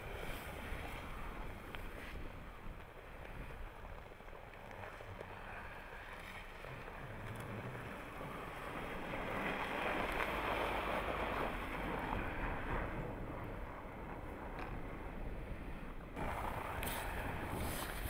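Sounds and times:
car driving on packed snow: 0.0 - 18.0
wind noise on microphone: 0.0 - 18.0.

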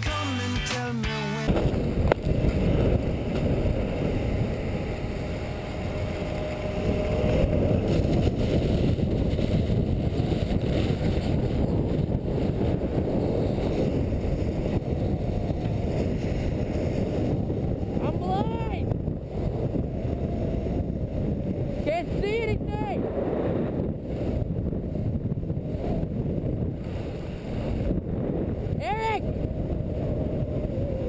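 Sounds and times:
wind and skis rumbling: 1.5 - 31.0.

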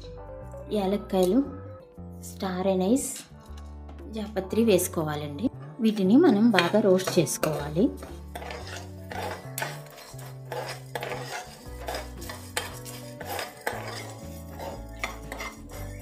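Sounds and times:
background music with low bass: 0.0 - 16.0
spoon clinking against pan: 6.5 - 16.0
spices rattling in a pan: 6.6 - 16.0.

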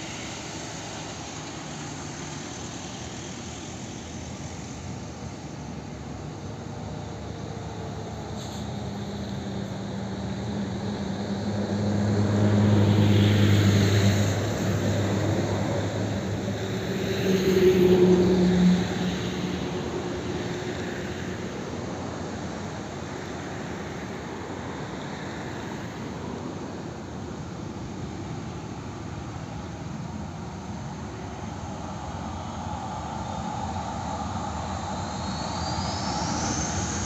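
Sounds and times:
jet airliner taxiing: 0.0 - 37.0.

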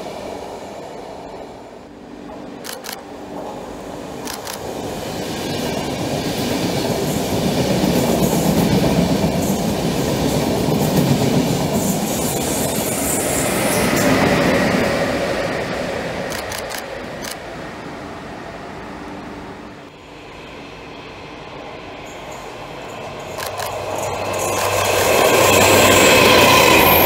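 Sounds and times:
electric locomotive whine: 0.0 - 27.0
sharp clicks: 16.3 - 17.4, 23.4 - 23.8.

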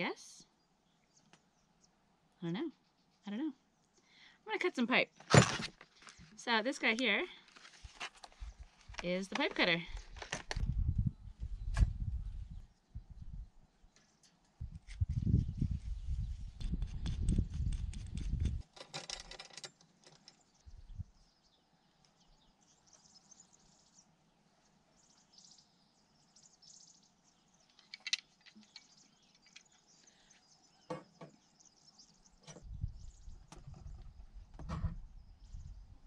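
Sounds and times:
faint birdsong: 0.0 - 36.0.

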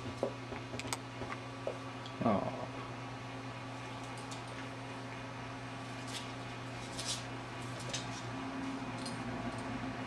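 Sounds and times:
low electrical hum: 0.0 - 10.0.

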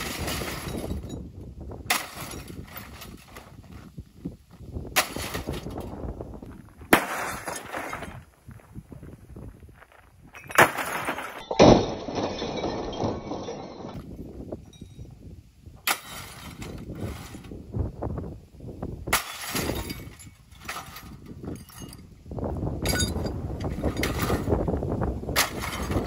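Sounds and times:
broken plastic and glass clattering: 0.0 - 1.3, 6.9 - 8.2, 10.4 - 14.1, 19.1 - 22.0, 22.8 - 24.6, 25.4 - 26.0
sledgehammer smashing television: 25.4 - 26.0.

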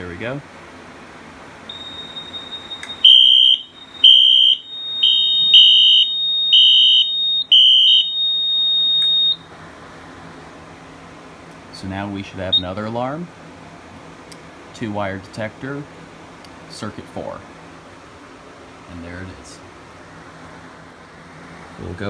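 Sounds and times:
high electronic alarm tone: 1.7 - 9.5
pulsing alarm beep: 1.7 - 9.5.

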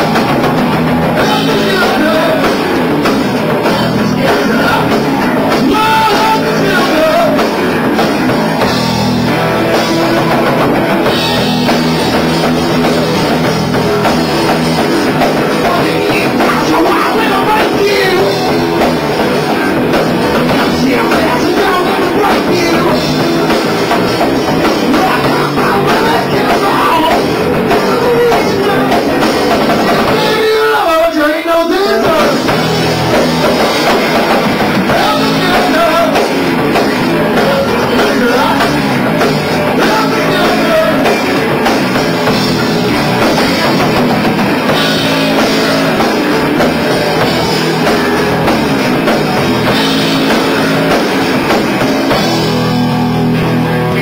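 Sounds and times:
bass guitar: 0.0 - 54.0
drum kit: 0.0 - 54.0
electric guitar: 0.0 - 54.0
person singing: 1.0 - 2.9, 3.5 - 7.7, 15.1 - 19.0, 20.3 - 32.7, 34.8 - 41.6.

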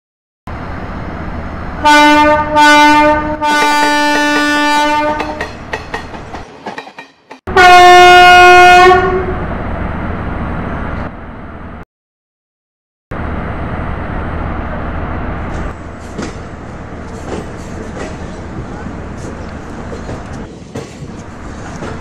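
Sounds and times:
passing train running noise: 0.5 - 11.8, 13.1 - 22.0
train horn blast: 1.8 - 5.5, 7.5 - 9.4.

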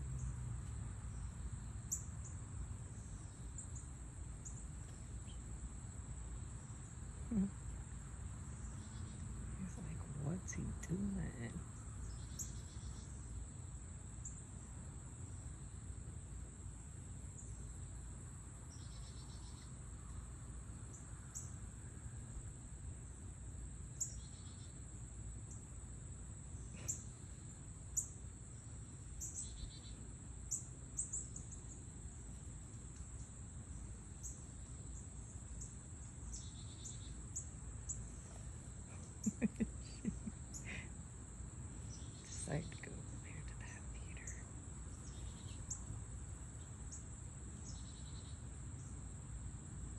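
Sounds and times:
low steady rumble: 0.0 - 12.2, 37.5 - 46.6
insects droning: 0.0 - 49.9.

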